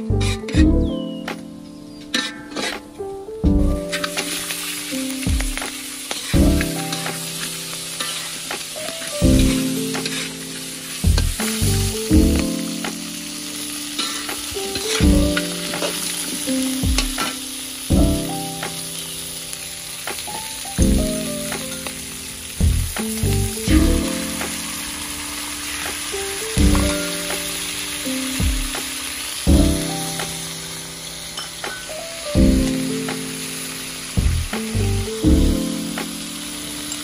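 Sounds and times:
metal spatula scraping and knocking: 2.0 - 3.0, 8.0 - 8.4, 9.4 - 10.4
crabs sizzling in wok: 3.6 - 37.0.

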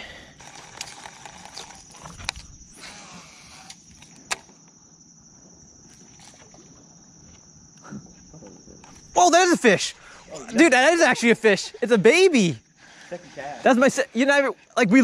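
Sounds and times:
high-pitched insect buzz: 0.0 - 12.8
fishing reel handling noise: 0.3 - 2.6.

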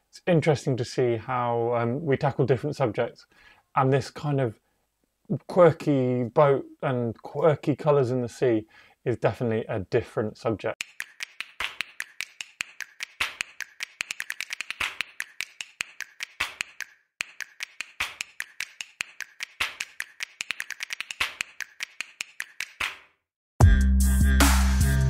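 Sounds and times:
sharp clicks and taps: 10.8 - 23.0.

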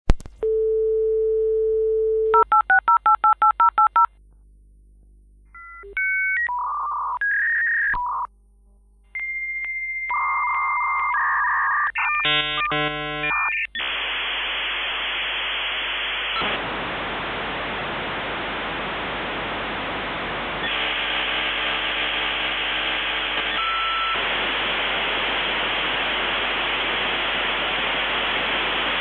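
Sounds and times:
dial tone: 0.4 - 4.1, 9.2 - 13.6, 23.6 - 24.2
modem line noise hiss: 12.0 - 29.0
modem handshake beeps and chirps: 23.4 - 24.2.

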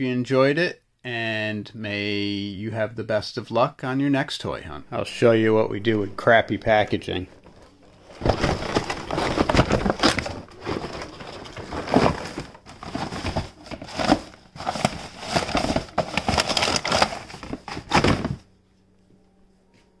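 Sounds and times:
cardboard crumpling: 7.4 - 18.4.

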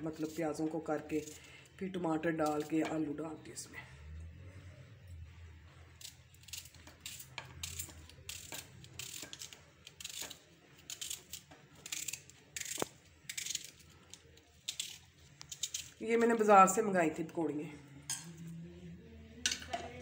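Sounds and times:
knife slicing onion: 6.0 - 16.0.

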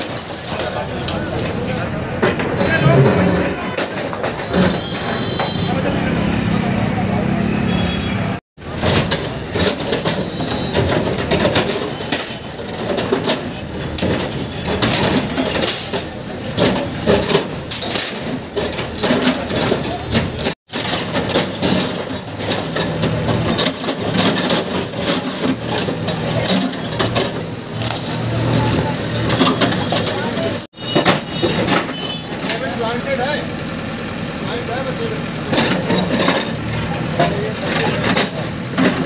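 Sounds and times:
masonry and rubble crashing: 0.0 - 5.7, 8.6 - 33.3, 35.4 - 39.0
diesel engine running: 0.0 - 39.0.

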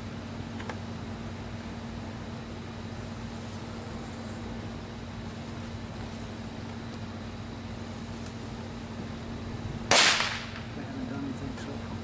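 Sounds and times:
steady low hum: 0.0 - 12.0
firework bang: 9.9 - 10.7.

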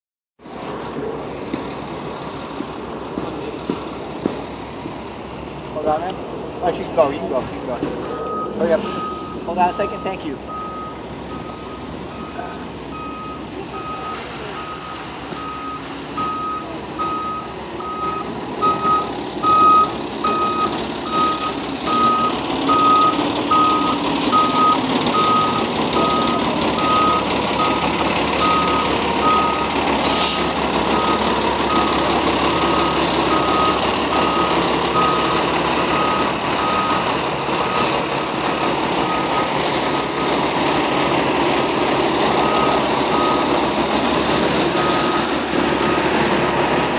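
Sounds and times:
diesel engine running: 0.4 - 46.9
reversing alarm beeping: 8.1 - 38.3, 39.0 - 40.5, 41.3 - 46.3.

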